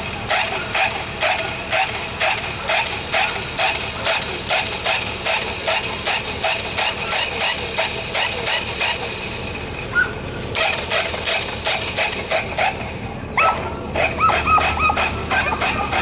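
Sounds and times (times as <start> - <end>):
dog yipping: 0.3 - 4.6, 5.2 - 7.6, 9.9 - 16.0.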